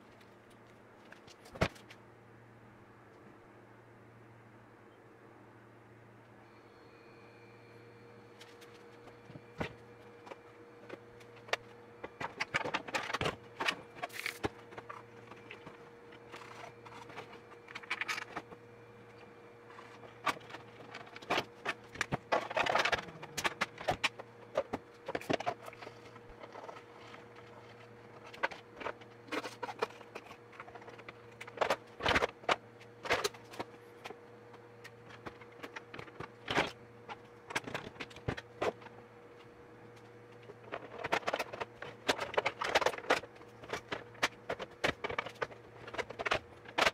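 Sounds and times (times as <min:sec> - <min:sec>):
plastic parts clicking and knocking: 0:20.2 - 0:25.8, 0:40.4 - 0:46.9.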